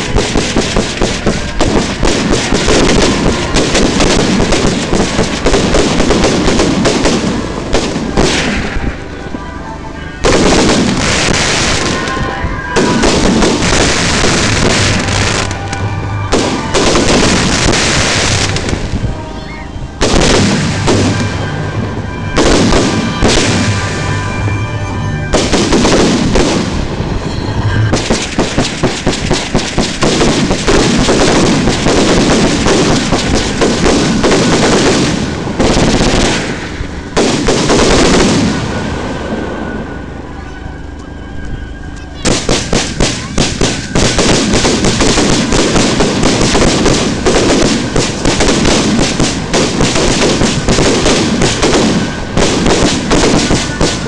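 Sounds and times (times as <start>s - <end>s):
fireworks sharp cracks: 0.0s - 24.6s, 25.2s - 39.8s, 42.2s - 54.0s
fireworks launching and banging: 0.0s - 40.2s, 42.1s - 54.0s.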